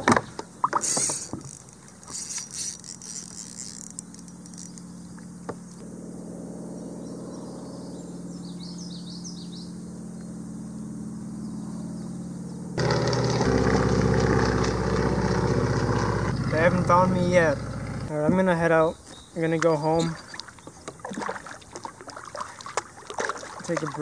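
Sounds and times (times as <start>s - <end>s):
propeller plane engine drone: 0.0s - 19.3s
fishing tackle clicking and rattling: 0.8s - 4.9s.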